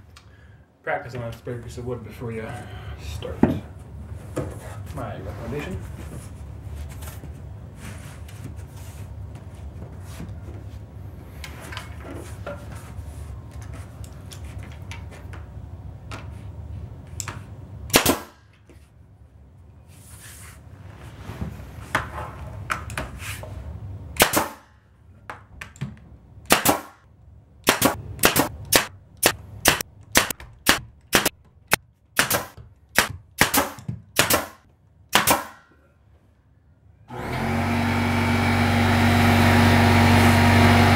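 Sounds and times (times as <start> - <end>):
pneumatic nail gun firing: 17.9 - 18.4, 24.2 - 24.7, 26.5 - 27.0, 27.6 - 35.6.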